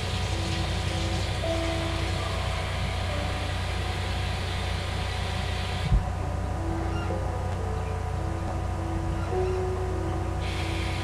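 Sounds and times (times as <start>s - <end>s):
hiss: 0.0s - 6.0s, 10.4s - 11.0s
faint background music: 0.0s - 11.0s
low hum: 0.0s - 11.0s.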